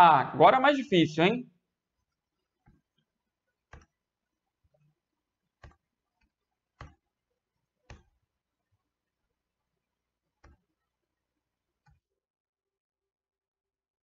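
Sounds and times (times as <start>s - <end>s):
computer mouse clicks: 3.7s - 4.0s, 5.6s - 7.0s, 10.4s - 10.7s.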